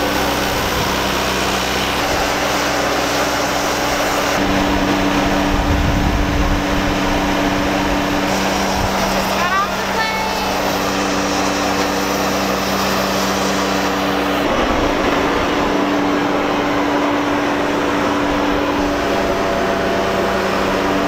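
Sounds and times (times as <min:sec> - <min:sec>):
mechanical hum: 0:00.0 - 0:21.0.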